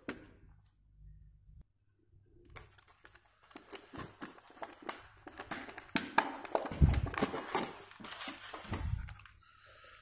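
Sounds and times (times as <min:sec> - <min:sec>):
plastic packaging crackling: 0:02.4 - 0:09.4.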